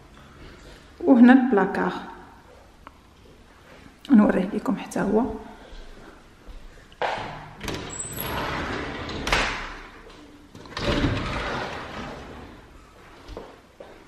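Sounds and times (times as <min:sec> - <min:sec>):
sliding closet doors rolling: 0:07.2 - 0:13.0.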